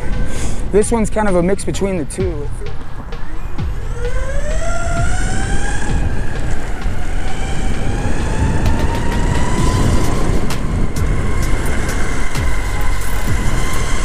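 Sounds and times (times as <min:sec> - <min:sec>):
loud low rumble: 0:03.6 - 0:14.0
electric motor whine: 0:03.7 - 0:14.0.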